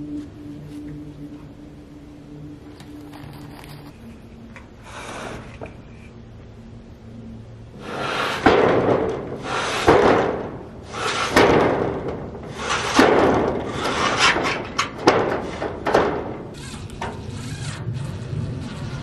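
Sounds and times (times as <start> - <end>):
rattling noise: 7.7 - 19.0
loud knocks: 8.4 - 16.6.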